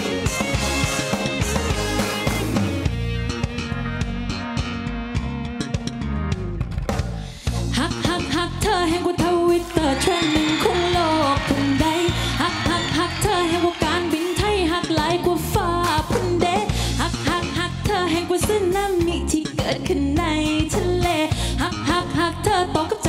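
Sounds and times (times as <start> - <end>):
drum and bass beat: 0.0 - 22.2
person singing: 7.8 - 23.0.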